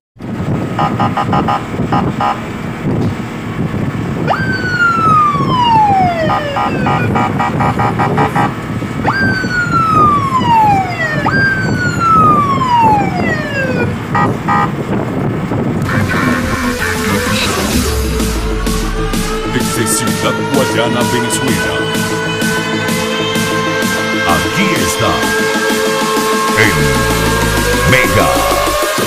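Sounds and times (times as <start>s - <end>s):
fire truck siren sweeps: 4.1s - 14.7s, 16.0s - 29.0s
steady rumble: 9.8s - 24.1s, 26.0s - 29.0s.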